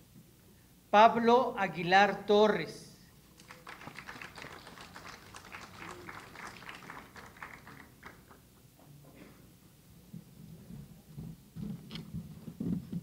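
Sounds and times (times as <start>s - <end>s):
small group applauding: 3.3s - 8.6s.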